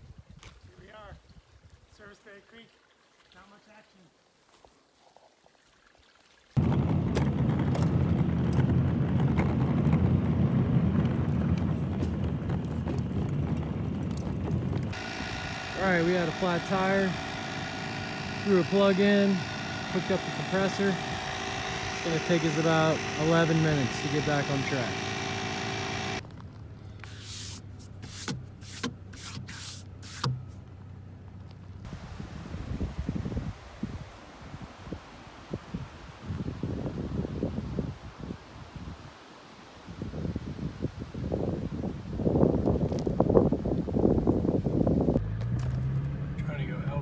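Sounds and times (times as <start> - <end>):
engine and tyres rumbling: 6.6 - 32.1, 42.0 - 47.0
air compressor running: 14.9 - 26.2, 27.0 - 30.6
hand wiping across glass: 27.0 - 30.6.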